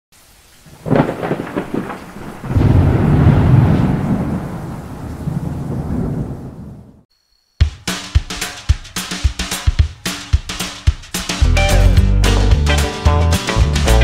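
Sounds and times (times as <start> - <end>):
steady rain: 0.2 - 7.0
thunder crack and rumble: 0.7 - 7.0.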